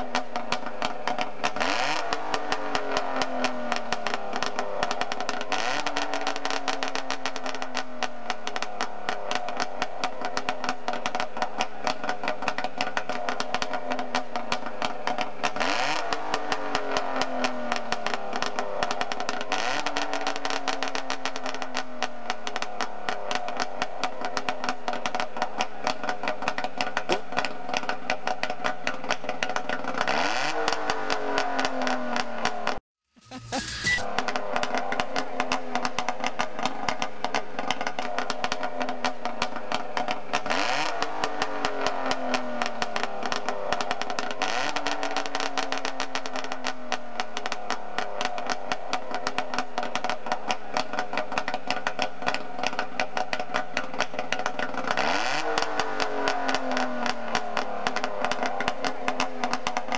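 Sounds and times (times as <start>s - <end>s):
two-stroke engine revving: 1.4s - 7.3s, 15.5s - 21.0s, 27.0s - 27.9s, 29.8s - 36.8s, 40.0s - 46.7s, 54.5s - 59.6s.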